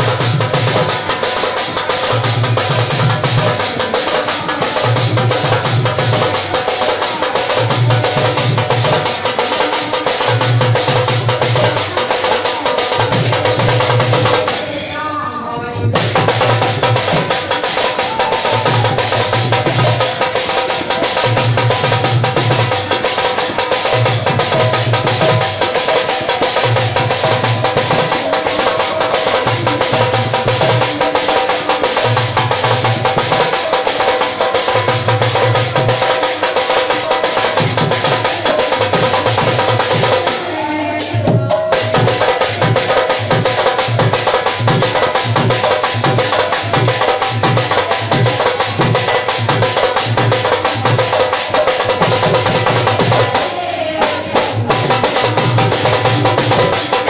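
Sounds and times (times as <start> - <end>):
women singing into microphones: 9.8 - 44.1, 52.2 - 57.0.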